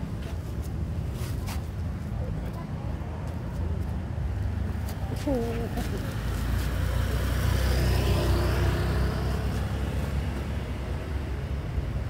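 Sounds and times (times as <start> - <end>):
passing motor vehicle rumble: 2.8 - 12.0.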